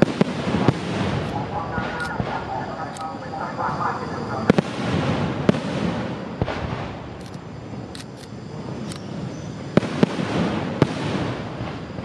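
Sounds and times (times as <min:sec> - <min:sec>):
faint high crackles: 0:00.0 - 0:04.6.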